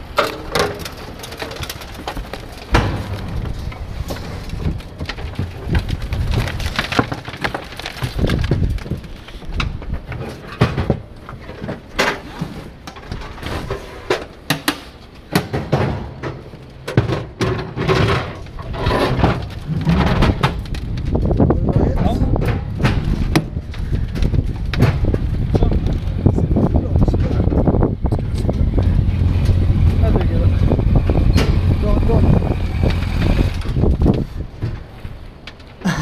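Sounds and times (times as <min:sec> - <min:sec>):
metal trailer rattling and clanking: 0:00.0 - 0:08.8, 0:09.7 - 0:35.4
low rumble: 0:02.5 - 0:07.1, 0:18.4 - 0:34.9.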